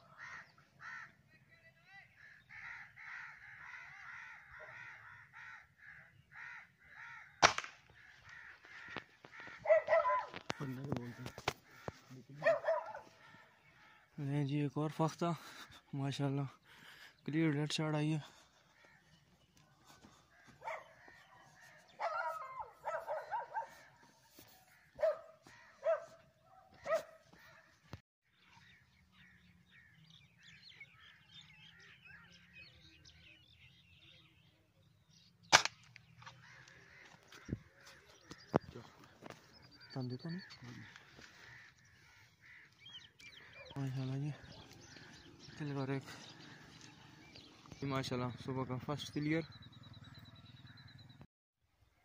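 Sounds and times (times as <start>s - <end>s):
bird cawing: 0.0s - 1.3s, 2.1s - 14.3s, 18.2s - 34.1s, 36.0s - 47.8s
shotgun shot: 7.4s - 7.8s, 35.5s - 35.9s
dog barking and yipping: 9.6s - 10.4s, 12.4s - 13.1s, 20.6s - 20.9s, 22.0s - 23.8s, 25.0s - 27.2s.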